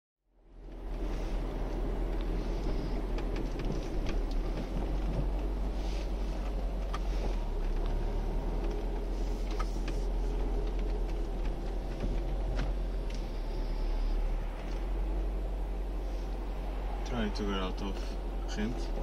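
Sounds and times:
car road and engine drone: 0:00.2 - 0:19.0
small clicks and rattles: 0:08.6 - 0:13.4.

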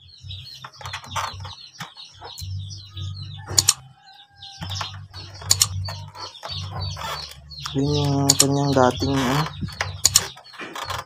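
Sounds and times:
small birds chirping: 0:00.0 - 0:11.0
sharp clicks: 0:03.4 - 0:03.9, 0:04.6 - 0:11.0.

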